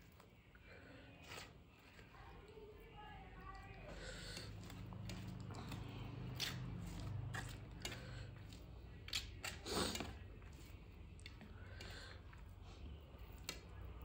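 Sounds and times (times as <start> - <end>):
fingers squishing food: 3.6 - 14.0
chewing mouth sounds: 4.5 - 10.2.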